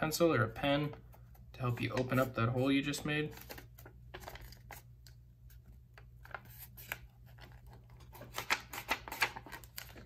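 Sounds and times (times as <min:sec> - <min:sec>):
paper rustling and crackling: 0:03.2 - 0:04.9, 0:05.5 - 0:10.0.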